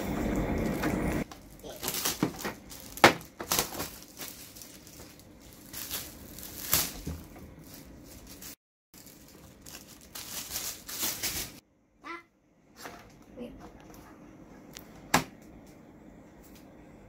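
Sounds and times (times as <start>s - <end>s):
packaging crinkling and tearing: 0.6s - 11.6s.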